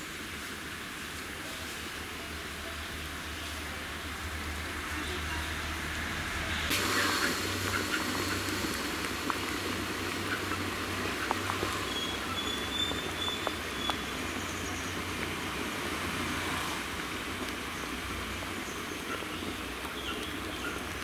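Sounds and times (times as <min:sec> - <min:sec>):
gas burner rumble and hiss: 0:00.0 - 0:21.0
bubbles popping: 0:06.7 - 0:14.3
gravy bubbling in a pot: 0:06.7 - 0:21.0.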